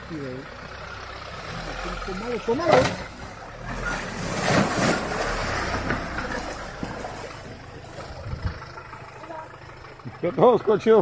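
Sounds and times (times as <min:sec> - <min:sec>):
car engine running low: 0:00.0 - 0:11.0
water splashing and sloshing: 0:04.1 - 0:09.1.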